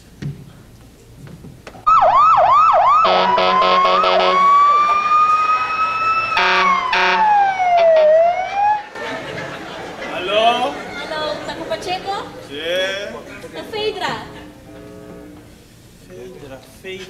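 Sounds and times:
siren-style phone ringtone: 0:01.9 - 0:08.9.

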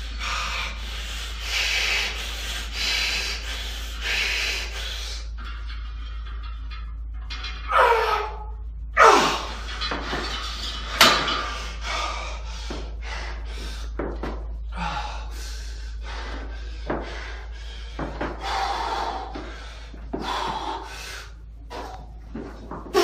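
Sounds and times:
man breathing hard: 0:00.0 - 0:05.4, 0:11.3 - 0:22.3
weight stack clanking: 0:04.0 - 0:14.7, 0:21.7 - 0:23.0.

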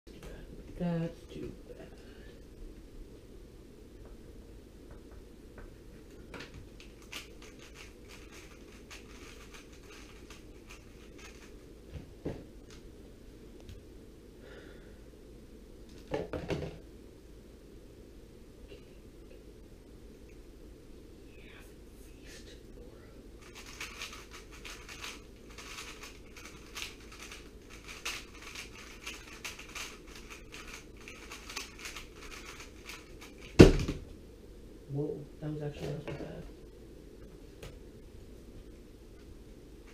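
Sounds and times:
puzzle cube plastic clicks: 0:06.4 - 0:11.5, 0:23.4 - 0:33.6.

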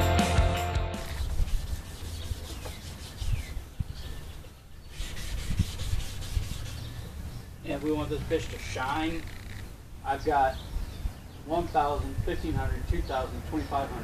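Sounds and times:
rock music: 0:00.0 - 0:01.1
wet sanding wood by hand: 0:01.0 - 0:03.7, 0:04.9 - 0:07.1.

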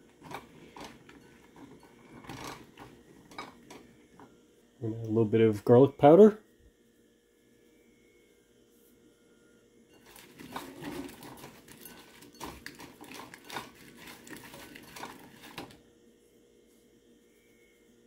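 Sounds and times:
okra rustling in a bowl: 0:10.0 - 0:15.8.

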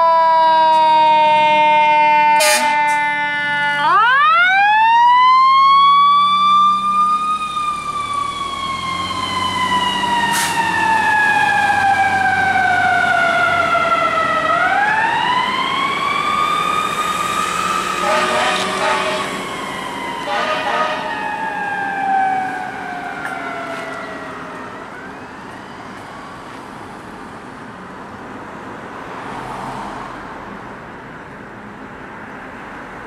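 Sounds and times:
fire truck siren winding: 0:00.0 - 0:25.6.

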